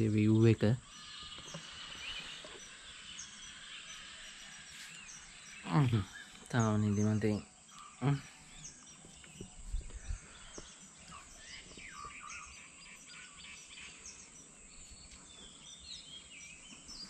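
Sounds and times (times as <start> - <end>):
birds chirping and calling: 0.0 - 17.0
soft low bumps: 9.0 - 10.8.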